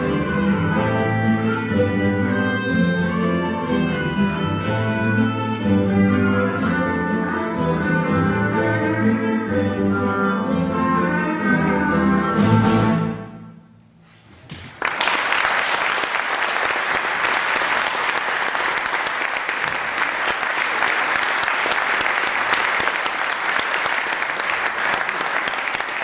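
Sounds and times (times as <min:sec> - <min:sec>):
audience applause: 0:14.5 - 0:26.0.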